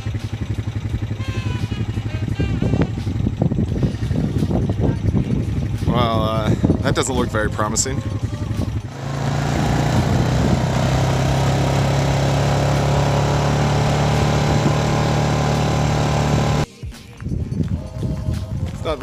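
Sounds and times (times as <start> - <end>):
engine droning steadily: 0.0 - 16.7.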